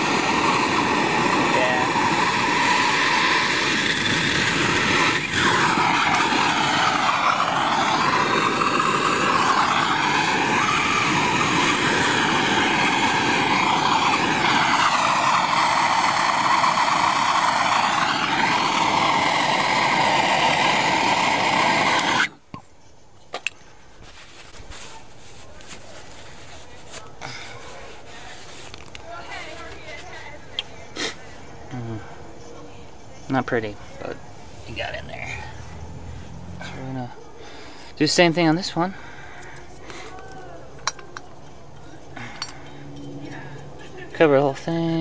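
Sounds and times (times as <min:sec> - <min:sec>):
gas torch flame hissing: 0:00.0 - 0:22.6.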